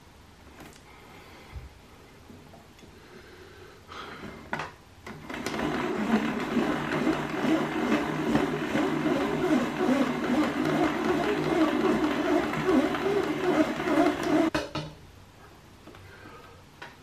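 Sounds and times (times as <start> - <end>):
small electric motor whirring: 5.6 - 14.5.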